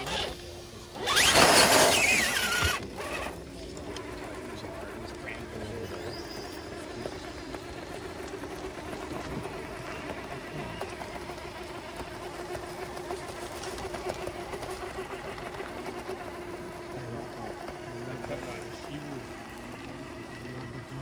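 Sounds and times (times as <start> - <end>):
electric motor whining: 0.0 - 21.0.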